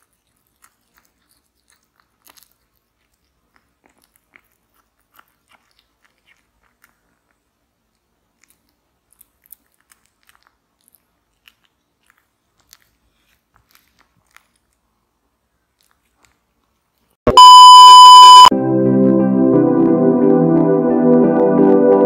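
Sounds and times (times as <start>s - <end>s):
cat chewing: 0.0s - 17.2s
static crackle: 17.3s - 18.5s
test-pattern beep: 17.3s - 18.5s.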